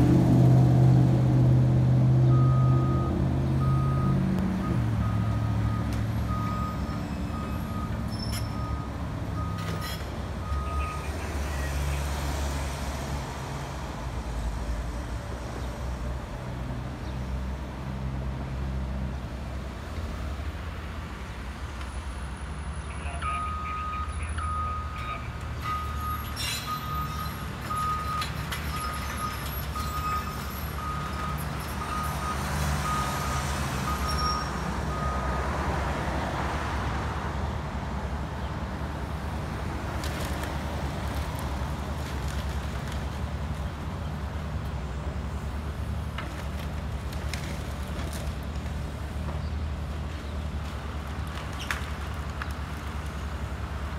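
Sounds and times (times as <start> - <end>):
reversing alarm beeping: 23.2 - 35.3.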